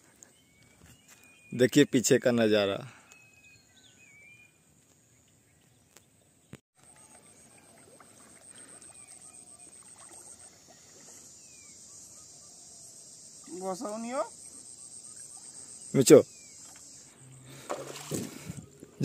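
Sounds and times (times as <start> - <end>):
faint bird chirps: 0.0 - 2.0, 2.8 - 19.0
water swishing around wading legs: 6.8 - 11.4, 17.6 - 18.6
pulsing insect trill: 6.8 - 19.0.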